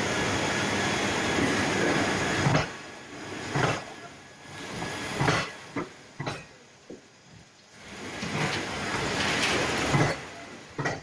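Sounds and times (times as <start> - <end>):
train coaches rumbling past: 0.0 - 6.5, 7.8 - 11.0
wheel thumps over rail joints: 8.2 - 11.0.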